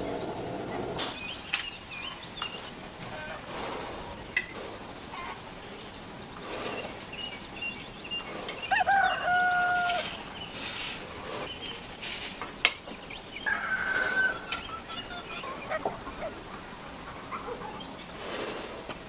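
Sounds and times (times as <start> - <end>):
animal call: 8.1 - 11.7, 13.4 - 18.9
hiss bursts: 8.3 - 12.9.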